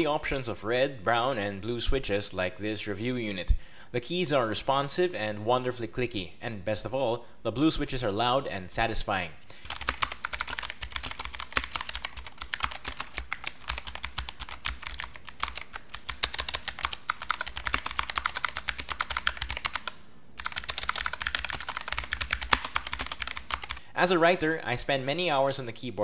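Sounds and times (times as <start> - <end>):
clicky mechanical keyboard typing: 9.6 - 23.8.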